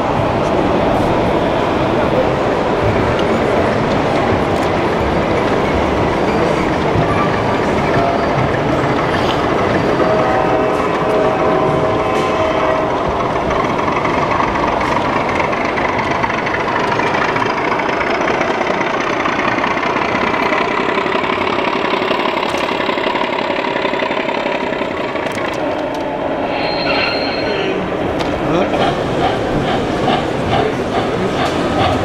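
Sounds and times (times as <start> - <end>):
model locomotive engine rumble: 2.5 - 26.4
wheels rolling on rails: 2.8 - 32.0.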